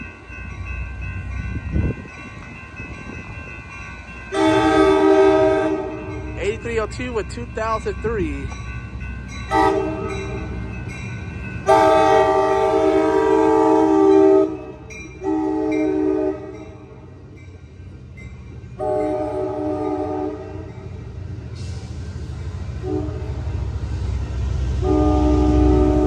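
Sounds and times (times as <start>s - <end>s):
train horn blasts: 4.3s - 6.3s, 9.5s - 10.5s, 11.6s - 16.8s, 18.8s - 20.7s, 22.8s - 23.4s, 24.8s - 26.0s
passenger cars rumbling by: 4.7s - 14.0s.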